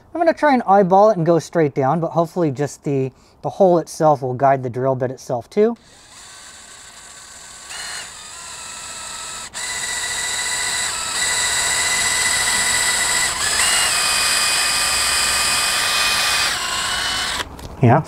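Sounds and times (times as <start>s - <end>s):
cordless drill motor whine: 5.8s - 17.5s.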